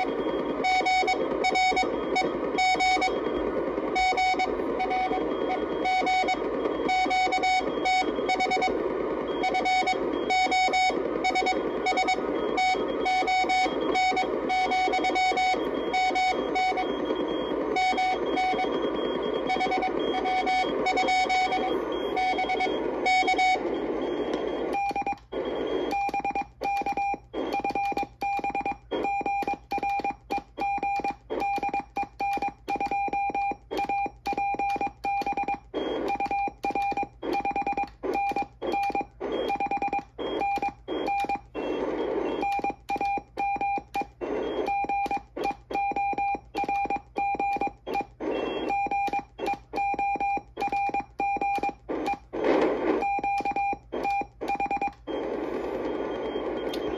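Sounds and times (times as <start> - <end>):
receiver hiss: 0.0 - 26.7, 35.7 - 43.0, 44.0 - 45.7, 51.7 - 56.9
morse code beeps: 0.0 - 56.9.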